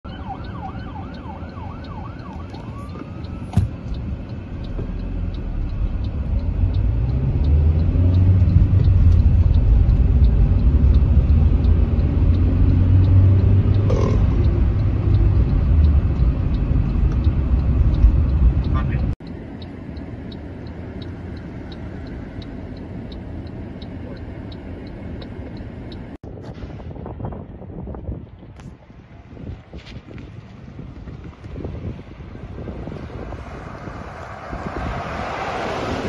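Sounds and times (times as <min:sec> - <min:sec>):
vehicle engine and tyre rumble: 0:00.0 - 0:36.0
fire engine siren yelping: 0:00.1 - 0:04.4
faint regular ticking: 0:00.4 - 0:26.2.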